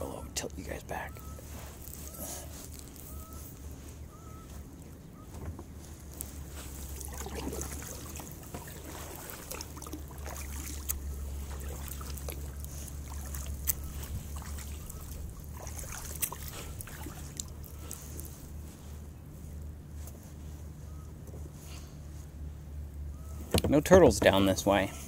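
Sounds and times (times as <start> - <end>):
steady low rumble: 0.0 - 25.0
paddle blades dipping in water: 4.3 - 19.0
sharp water drips: 6.8 - 18.0.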